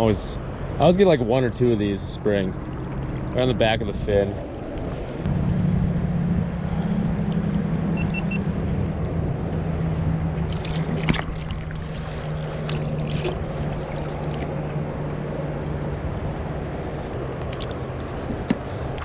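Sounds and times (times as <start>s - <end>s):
river rushing: 10.3s - 15.8s.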